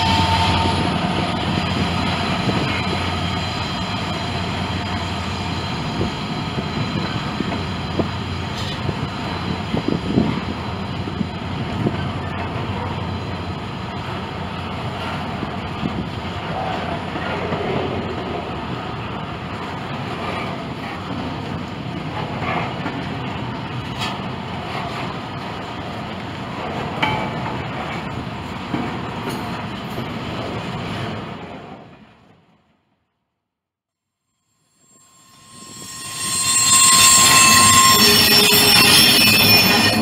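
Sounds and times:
high wheel squeals: 0.0s - 8.0s, 34.8s - 40.0s
freight train wheels rumbling: 0.0s - 32.2s, 35.2s - 40.0s.

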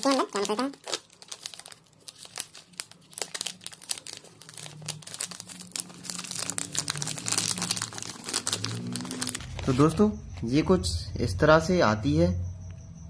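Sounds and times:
snack pouch crinkling: 0.0s - 9.8s.

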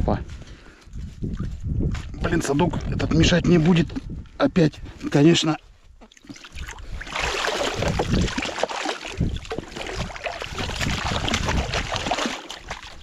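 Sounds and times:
water splashing and sloshing: 6.0s - 13.0s.

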